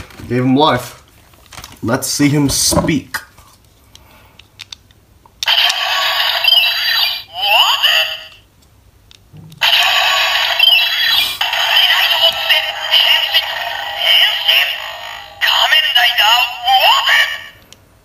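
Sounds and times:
toy electronic voice and music: 5.4s - 8.4s, 9.6s - 17.6s.

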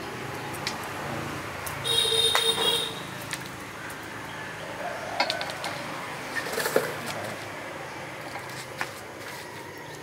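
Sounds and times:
bamboo rods knocking and clicking: 0.5s - 0.9s, 5.2s - 7.5s.

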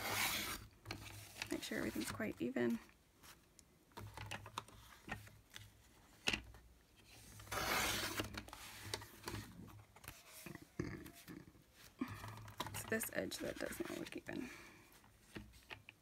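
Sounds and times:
paper cutting and rasping: 0.0s - 0.6s, 7.4s - 8.4s.

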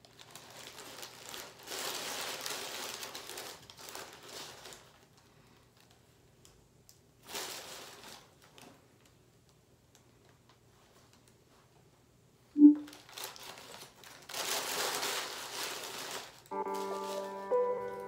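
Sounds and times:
paper wrapper crinkling: 0.0s - 6.0s, 7.2s - 9.1s, 12.8s - 18.0s.

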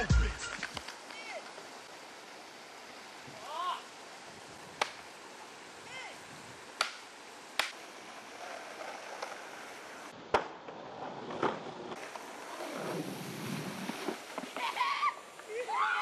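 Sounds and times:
skateboards clacking on concrete: 7.6s - 13.0s, 13.9s - 14.8s
water rushing over concrete: 12.6s - 16.0s.

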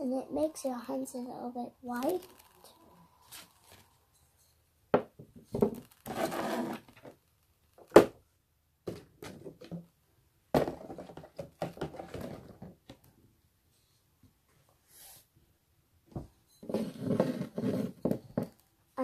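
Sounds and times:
plastic packaging crinkling: 1.9s - 2.7s.

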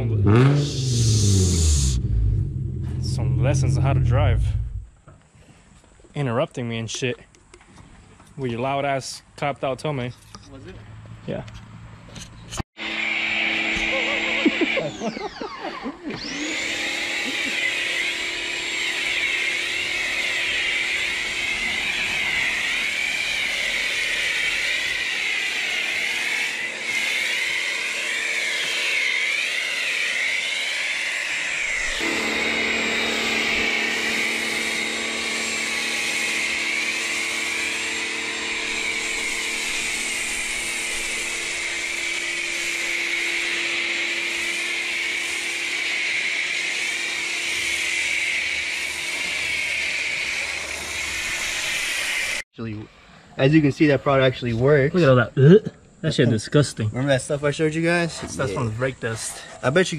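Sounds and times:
pressure washer motor hum: 0.0s - 4.8s, 12.8s - 52.4s
foam spray hissing: 19.1s - 52.4s.

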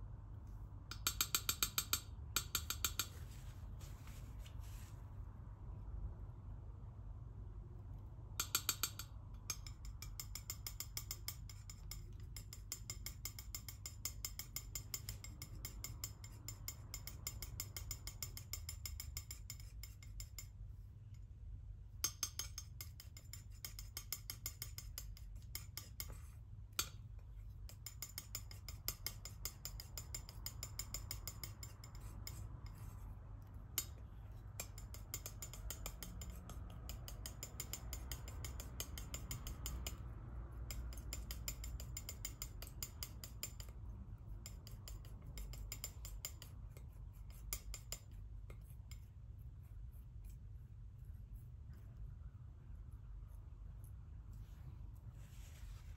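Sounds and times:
palette knife scraping paint: 8.4s - 20.8s, 22.1s - 52.3s.

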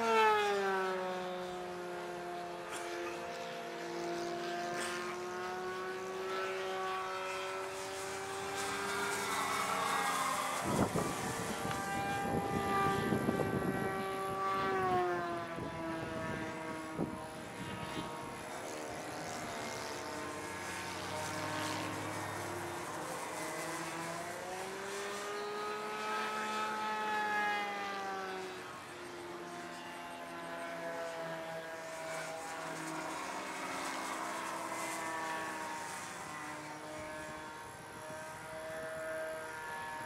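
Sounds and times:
model plane motor whine: 0.0s - 40.0s
wind rumbling on microphone: 9.4s - 18.4s.

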